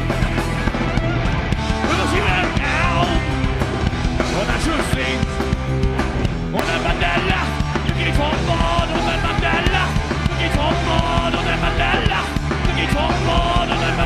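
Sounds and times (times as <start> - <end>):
rock band playing: 0.0 - 14.0
person singing: 6.5 - 14.0.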